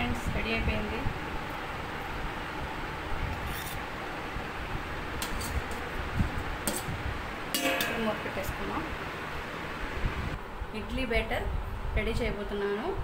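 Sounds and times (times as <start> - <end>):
steady background hiss: 3.8 - 13.0
ladle scraping steel vessel: 5.2 - 5.8, 7.6 - 8.6.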